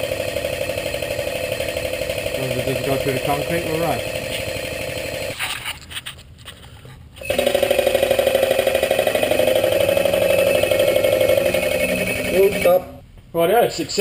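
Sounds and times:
hydraulic pump pulsing buzz: 0.0 - 5.4, 7.2 - 13.0.

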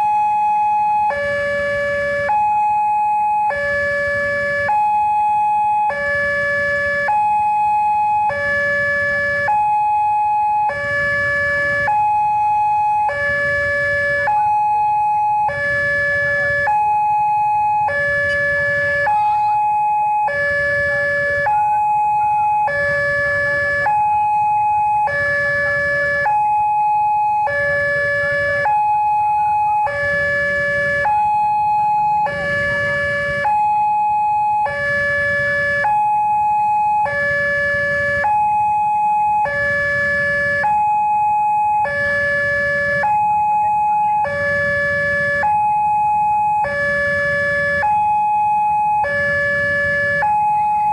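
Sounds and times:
two-tone crossing alarm: 0.0 - 50.9
motorcycle engines idling: 10.7 - 24.5.

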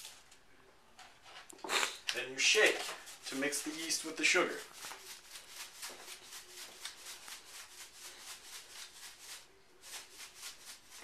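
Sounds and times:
sugar swishing in plastic bottle: 2.2 - 11.0.

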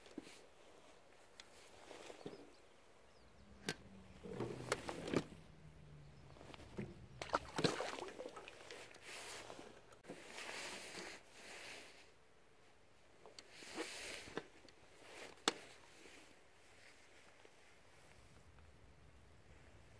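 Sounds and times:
clicks and rustles of fishing line: 3.6 - 5.4, 6.4 - 11.1, 13.2 - 16.3.

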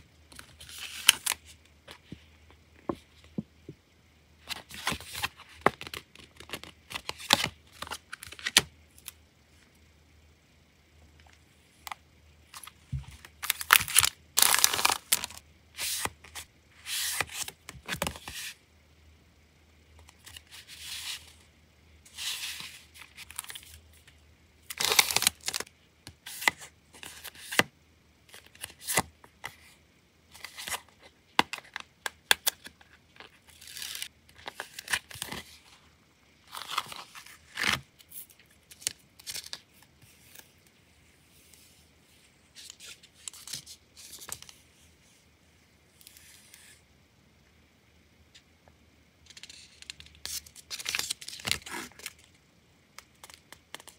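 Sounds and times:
memo pad pages flipping: 0.3 - 2.3, 4.4 - 9.2, 11.2 - 18.6, 24.7 - 27.7, 30.3 - 35.7, 36.5 - 40.7, 42.6 - 44.6, 49.2 - 52.4, 53.0 - 53.9
paper cards shuffled and fanned: 4.4 - 8.7, 12.5 - 18.6, 30.3 - 35.8, 42.6 - 44.6, 49.2 - 52.3, 53.0 - 53.9.

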